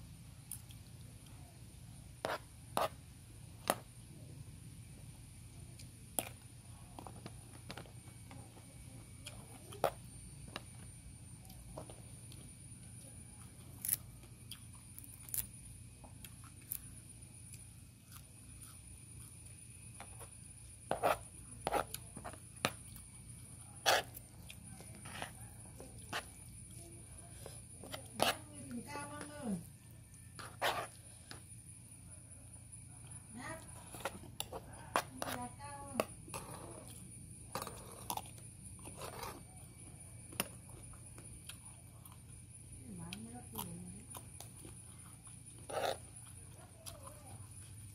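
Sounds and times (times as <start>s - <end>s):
low steady hum: 0.0s - 47.9s
person chewing: 13.8s - 15.5s, 17.5s - 19.5s, 37.9s - 39.4s.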